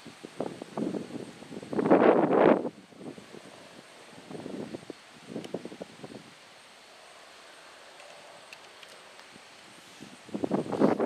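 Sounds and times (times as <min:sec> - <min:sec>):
wind buffeting microphone: 0:00.0 - 0:06.4, 0:09.2 - 0:11.0.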